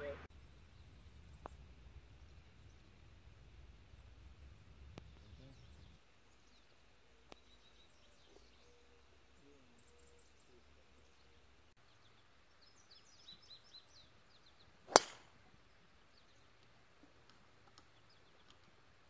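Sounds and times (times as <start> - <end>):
golf club striking ball: 14.9 - 15.4.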